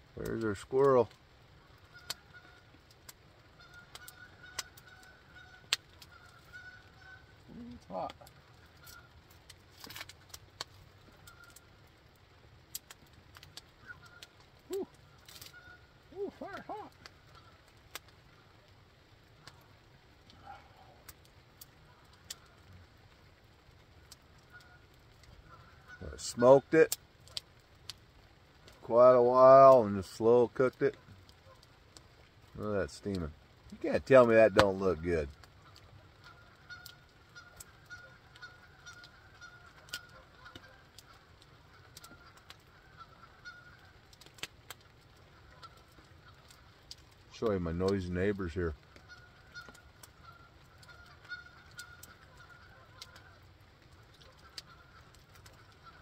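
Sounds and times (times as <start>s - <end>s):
faint campfire pops: 0.0s - 56.0s
geese honking: 1.6s - 10.3s, 11.0s - 11.8s, 12.9s - 18.6s, 19.4s - 22.7s, 24.0s - 27.4s, 33.8s - 56.0s.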